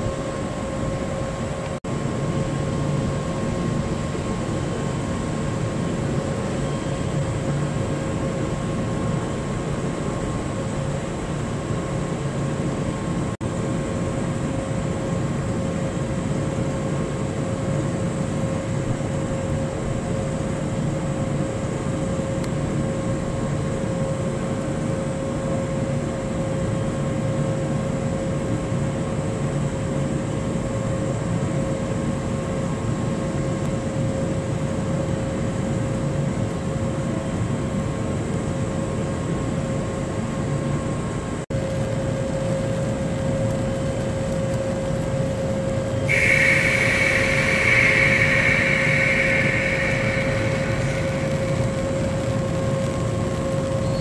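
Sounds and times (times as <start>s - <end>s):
electric train equipment hum: 41.6s - 54.0s
fixed-pitch whine: 44.4s - 54.0s
high-pitched tone: 46.1s - 52.4s.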